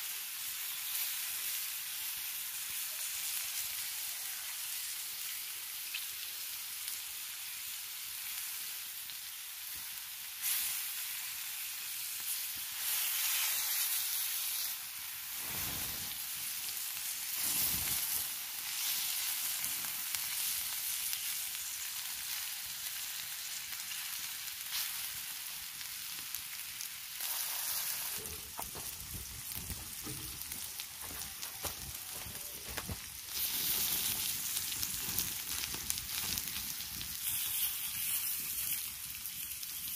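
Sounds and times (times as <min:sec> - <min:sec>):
meat sizzling on hot stone: 0:00.0 - 0:39.9
crackles and light knocks: 0:28.2 - 0:33.1, 0:33.8 - 0:37.2.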